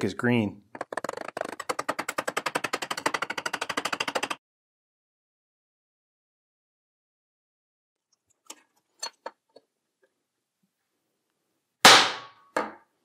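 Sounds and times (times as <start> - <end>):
axe striking steel nail: 11.8 - 12.8.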